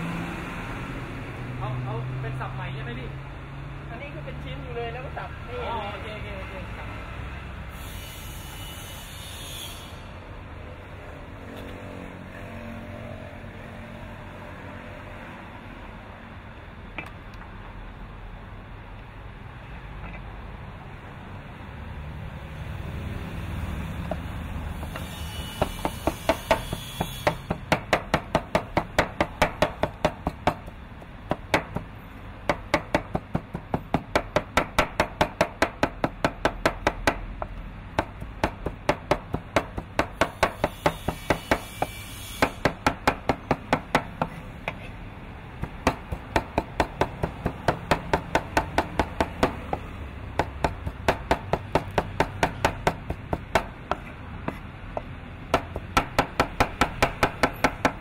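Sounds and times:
cleaver chopping meat on wooden board: 0:24.0 - 0:31.9, 0:32.5 - 0:44.8, 0:45.6 - 0:58.0.

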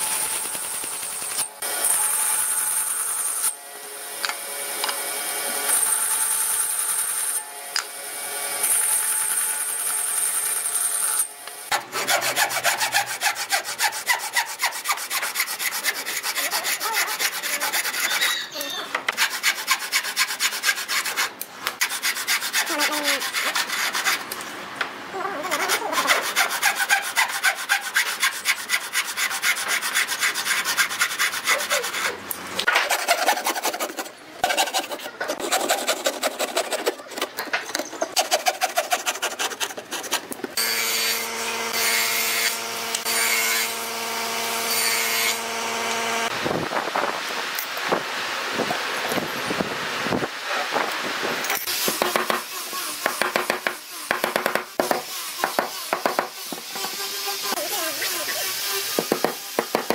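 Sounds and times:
hand tool scraping wood: 0:11.7 - 0:24.4, 0:25.4 - 0:40.6, 0:51.6 - 0:59.9.

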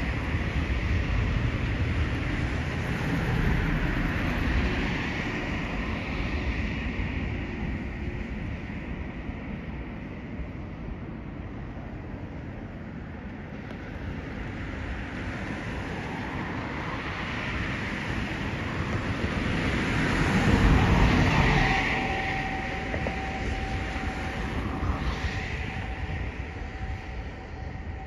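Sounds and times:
faint steady whine: 0:00.0 - 0:28.0
passing vehicle rumble and tyre noise: 0:00.0 - 0:28.0.

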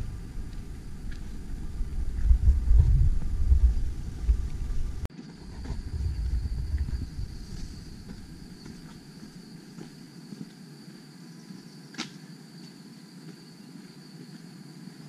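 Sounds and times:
faint footsteps on pavement: 0:00.4 - 0:15.0
high-pitched insect drone: 0:05.3 - 0:15.0.

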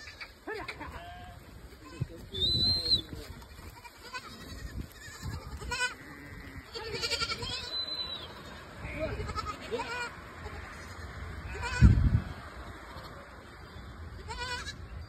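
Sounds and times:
goats bleating: 0:00.0 - 0:02.3, 0:03.2 - 0:12.0, 0:14.2 - 0:14.8.

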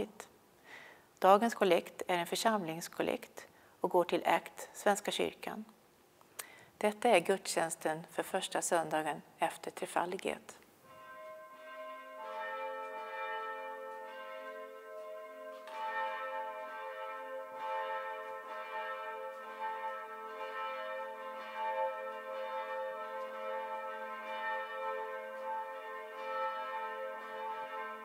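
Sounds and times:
church bells ringing: 0:10.9 - 0:28.0.

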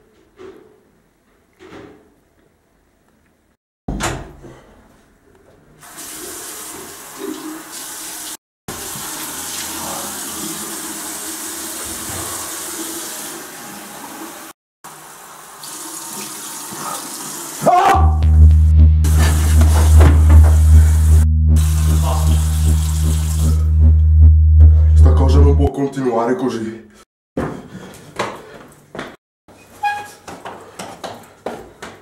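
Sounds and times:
tap water running into basin: 0:05.9 - 0:17.6
loud low drone: 0:18.1 - 0:25.7
sharp thump: 0:18.2 - 0:22.3.

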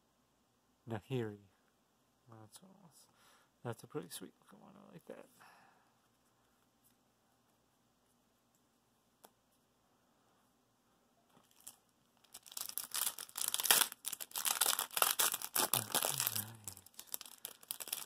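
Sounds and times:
foil pack tearing and crinkling: 0:11.5 - 0:18.0.

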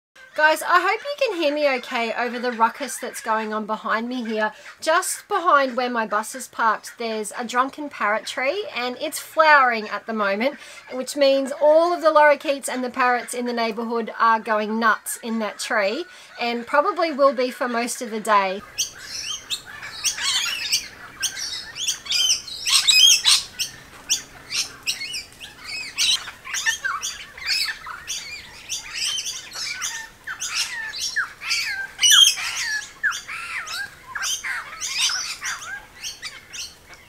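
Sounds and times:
parrots calling shrilly: 0:17.7 - 0:37.0.

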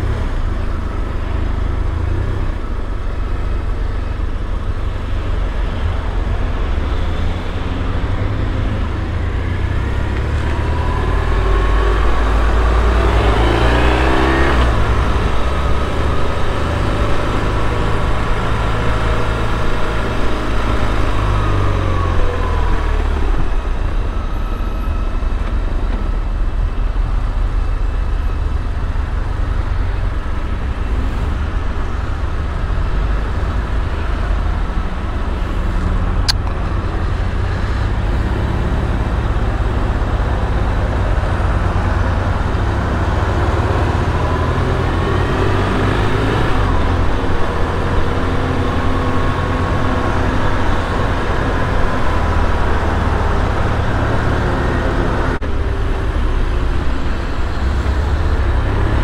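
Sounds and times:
road and traffic noise: 0:00.0 - 0:59.0.

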